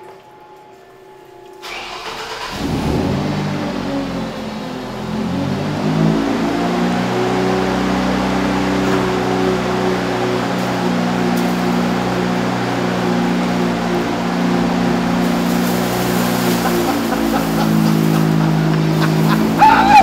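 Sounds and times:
ice resurfacing machine engine: 1.6 - 20.0
hydraulics tipping snow tank: 5.0 - 20.0.

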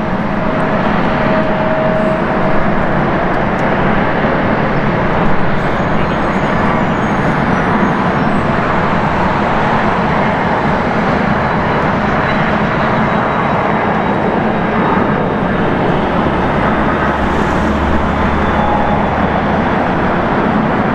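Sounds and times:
jet engines running: 0.0 - 20.9
deep hum: 15.2 - 20.9.

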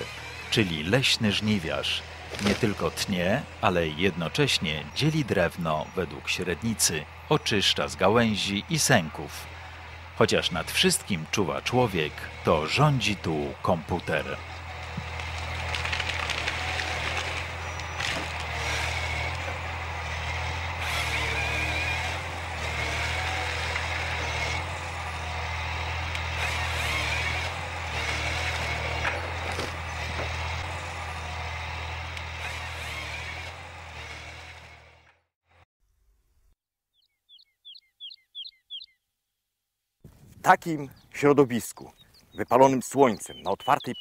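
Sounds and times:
diesel engine under load: 0.0 - 35.2.

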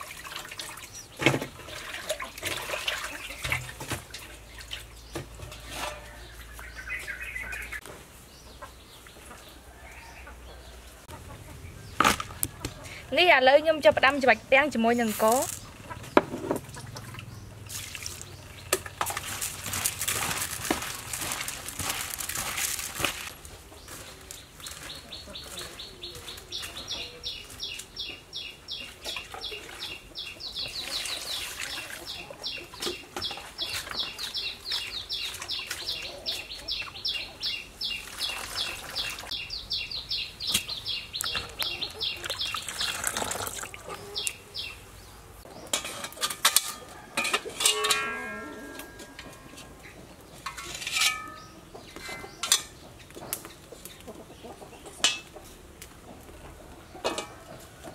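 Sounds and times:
wet squelching and splashing: 16.7 - 23.3
cookware knocks and clatters: 45.7 - 49.6, 50.4 - 52.8, 57.0 - 57.4.

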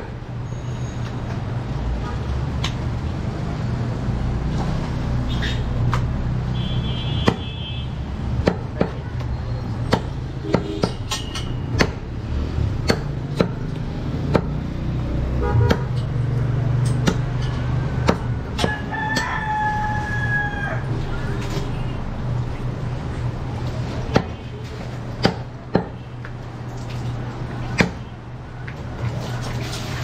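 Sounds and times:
knife chopping meat and bone: 7.2 - 7.5, 8.3 - 9.0, 9.7 - 14.7, 15.6 - 16.0, 16.7 - 19.6, 24.1 - 24.4, 25.2 - 26.0, 27.7 - 28.1
rooster crowing: 18.6 - 20.9.

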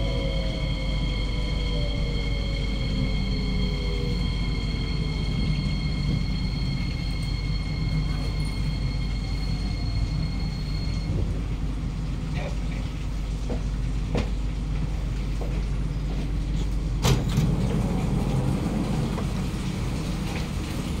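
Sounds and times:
high whine: 0.0 - 11.1
train low rumble: 0.0 - 21.0
train doors opening clack: 16.2 - 20.9.

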